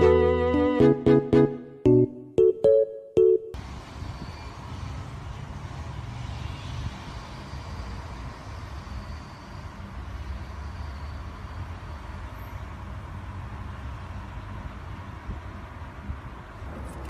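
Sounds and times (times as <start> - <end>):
distant road traffic rumble: 3.6 - 17.0.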